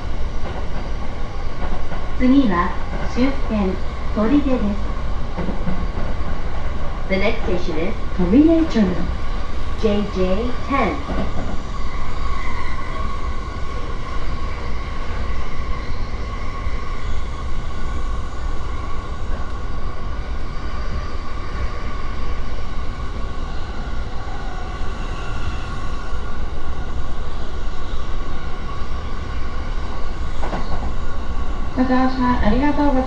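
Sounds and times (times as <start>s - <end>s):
train wheels rumbling on rail: 0.0s - 33.0s
train whine: 0.0s - 33.0s.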